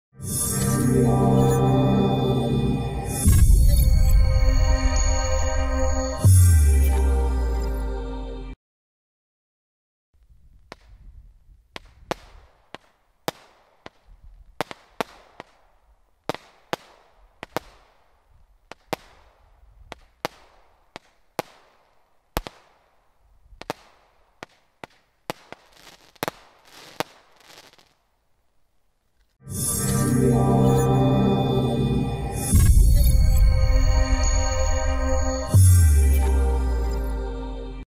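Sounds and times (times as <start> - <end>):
fireworks barrage reports: 10.6 - 22.8.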